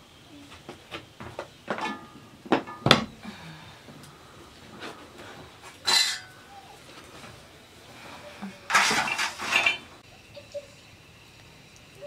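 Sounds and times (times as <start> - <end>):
metal pot and lid clanking: 5.8 - 6.4, 8.7 - 9.9.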